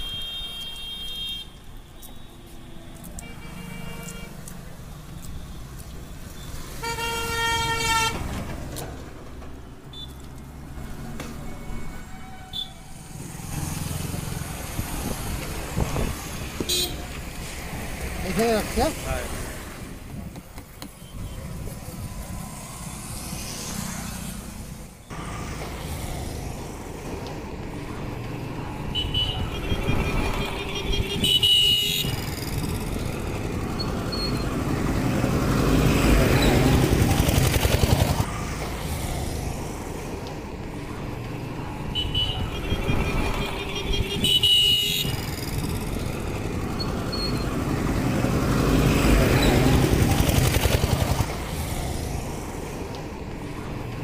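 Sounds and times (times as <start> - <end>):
road traffic passing: 0.0 - 54.0.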